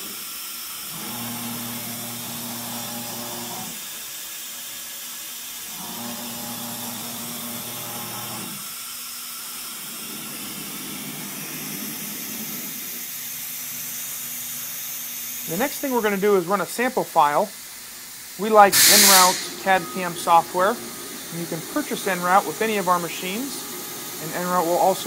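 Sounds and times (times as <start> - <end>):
compressed air hiss: 15.3 - 25.0
machine axis drives humming: 18.4 - 25.0.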